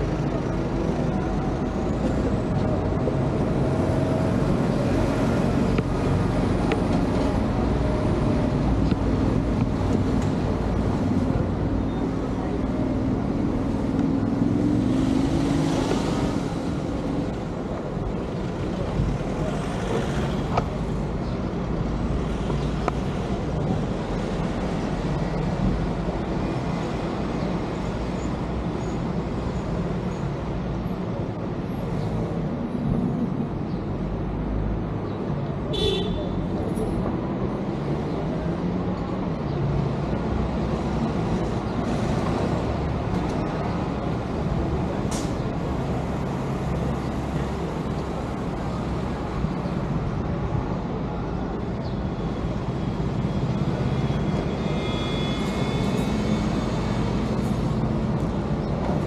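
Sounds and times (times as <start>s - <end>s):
vehicle engines running: 0.0s - 35.6s
vehicles passing: 0.0s - 59.0s.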